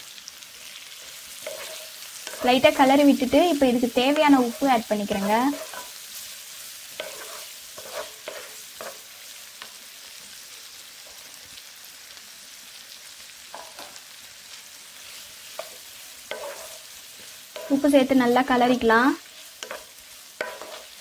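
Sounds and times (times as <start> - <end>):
onions sizzling in oil: 0.0 - 21.0
wooden spatula scraping pan: 1.0 - 3.0, 3.6 - 6.0, 6.9 - 9.1, 15.1 - 21.0.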